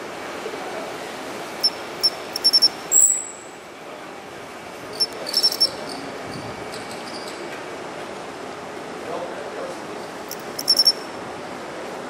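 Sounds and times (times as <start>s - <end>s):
steady low background noise: 0.0s - 6.7s, 7.6s - 12.0s
cricket chirping: 1.6s - 3.5s, 4.9s - 6.0s, 10.3s - 11.1s
high squeak: 1.6s - 3.5s, 4.9s - 7.4s, 10.3s - 11.1s.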